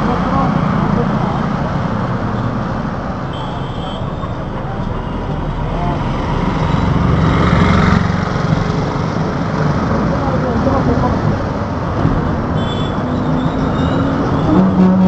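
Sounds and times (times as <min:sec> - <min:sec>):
road traffic engines and tyres: 0:00.0 - 0:15.0.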